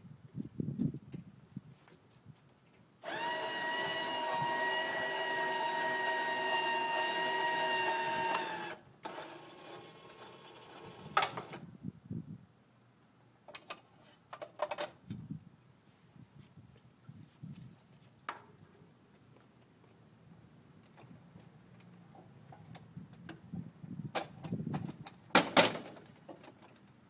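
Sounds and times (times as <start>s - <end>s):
crane electric motor whining: 3.0s - 11.6s.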